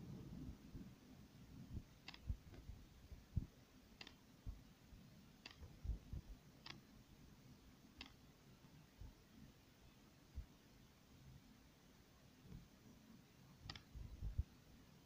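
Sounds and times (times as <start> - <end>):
faint sharp clicks: 2.0 - 2.7, 4.0 - 4.2, 5.4 - 5.7, 6.6 - 6.8, 8.0 - 8.2, 13.6 - 13.9.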